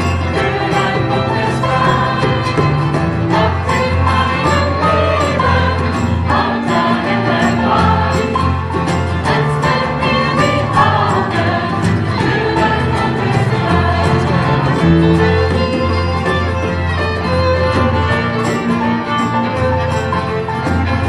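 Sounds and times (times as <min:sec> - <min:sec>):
group of voices singing: 0:00.0 - 0:16.2
acoustic band playing: 0:00.0 - 0:21.0.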